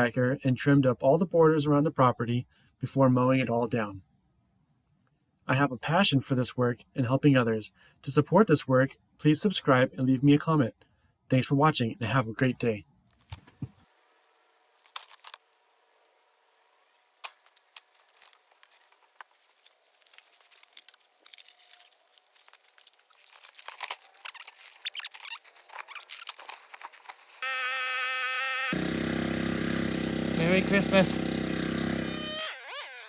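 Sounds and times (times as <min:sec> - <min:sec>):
dry grass rustling and crunching: 0:13.2 - 0:27.4
power tool motor whining: 0:27.4 - 0:33.0.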